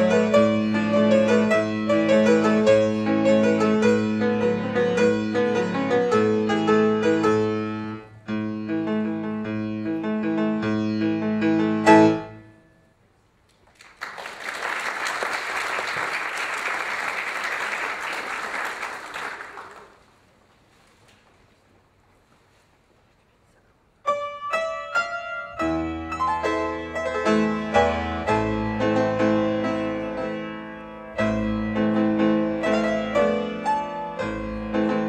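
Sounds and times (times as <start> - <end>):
piano music: 0.0 - 12.8, 24.1 - 35.0
audience applauding: 13.5 - 20.4.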